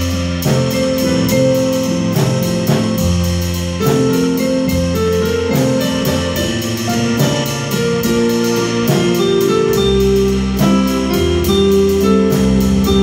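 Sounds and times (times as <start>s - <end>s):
drum kit beat on cymbals: 0.0s - 13.0s
electronic keyboards playing chords: 0.0s - 13.0s.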